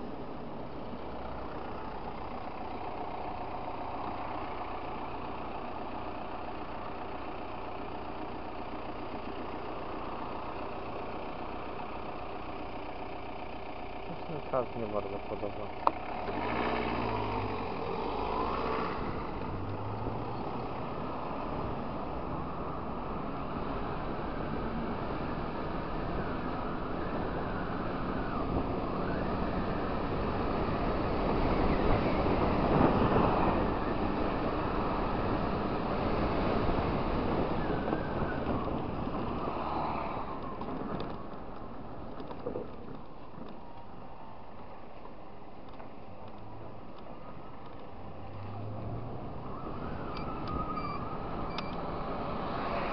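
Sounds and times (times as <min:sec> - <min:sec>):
scooter engine and tyre noise: 0:00.0 - 0:52.9
scooter engine whining: 0:25.3 - 0:39.5
wind over microphone: 0:28.1 - 0:39.6.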